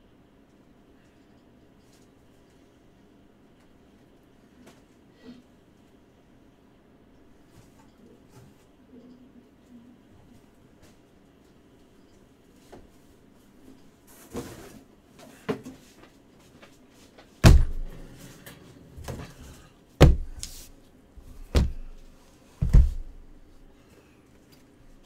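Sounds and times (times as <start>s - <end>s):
heavy thumps of boxes: 17.4s - 18.1s, 20.0s - 20.6s, 21.2s - 23.3s
boxes knocking and rustling: 17.4s - 23.3s.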